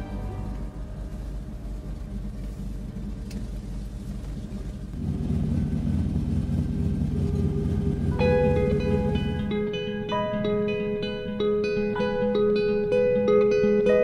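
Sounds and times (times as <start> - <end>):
propeller plane engine rumble: 0.0 - 13.7.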